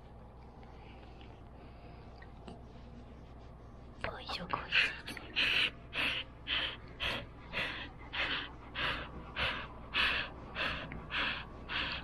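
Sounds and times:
dog panting: 0:04.3 - 0:12.0.

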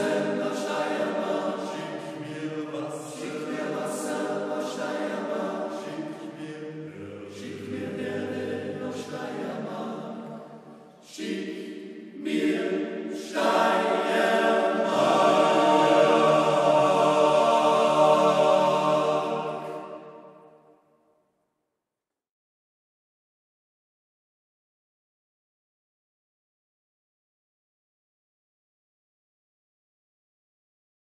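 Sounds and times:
male voice choir singing a cappella: 0:00.0 - 0:10.4, 0:11.0 - 0:20.2.

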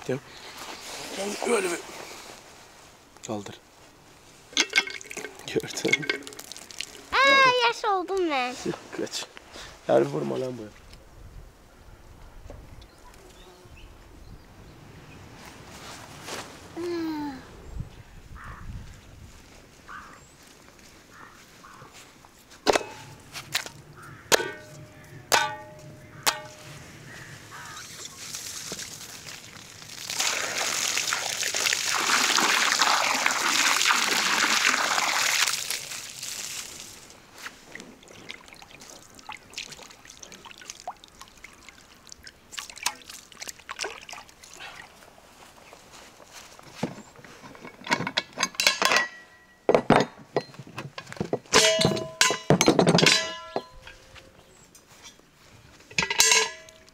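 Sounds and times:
water splashing and sloshing: 0:04.3 - 0:09.0, 0:22.6 - 0:46.2, 0:56.0 - 0:56.9
water pouring into basin: 0:05.0 - 0:07.2, 0:28.2 - 0:37.0
sharp knocks: 0:24.3 - 0:26.7.

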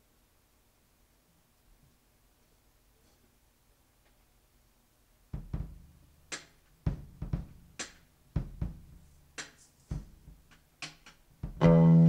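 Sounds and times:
kick drum thuds: 0:05.3 - 0:05.9, 0:06.9 - 0:09.1, 0:09.9 - 0:10.5, 0:11.4 - 0:11.9.

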